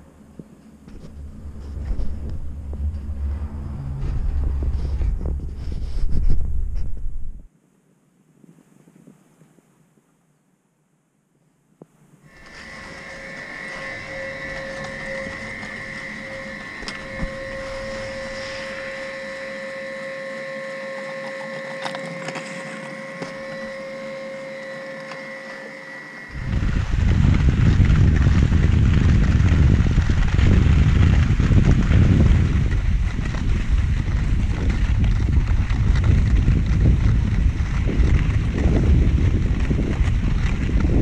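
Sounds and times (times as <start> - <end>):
ski lift whine: 0.0 - 7.5, 12.3 - 41.0
wind buffeting microphone: 0.0 - 7.5, 12.4 - 20.2, 26.3 - 41.0.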